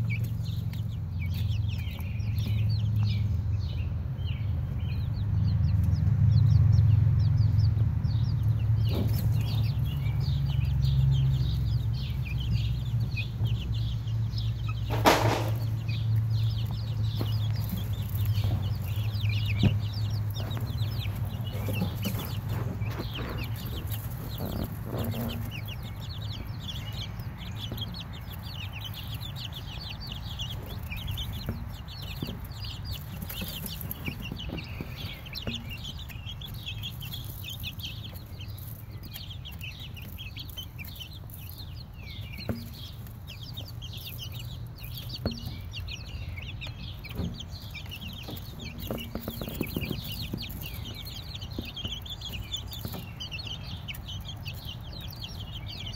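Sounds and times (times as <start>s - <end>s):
baby chicks peeping: 0.0s - 55.9s
sharp knock: 14.9s - 15.7s.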